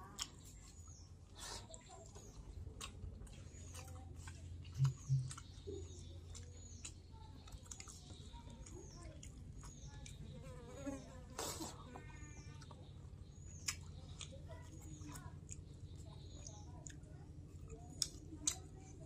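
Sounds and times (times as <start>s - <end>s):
person eating fried fish: 0.0s - 10.2s.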